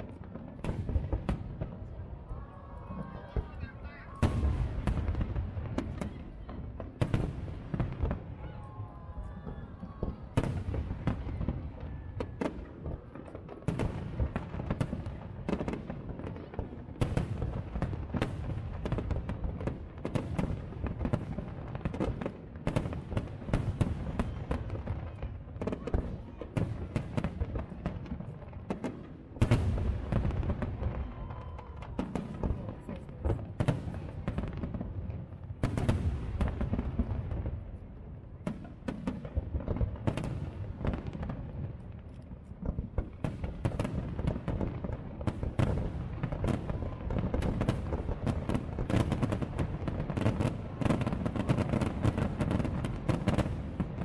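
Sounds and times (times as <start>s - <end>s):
heavy firework booms: 0.0s - 2.2s, 3.0s - 41.9s
fireworks bursting and crackling: 0.0s - 54.0s.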